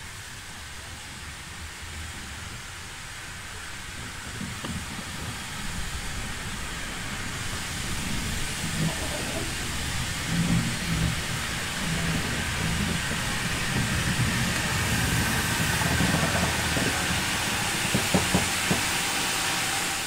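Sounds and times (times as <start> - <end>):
steam hissing: 0.0 - 20.0.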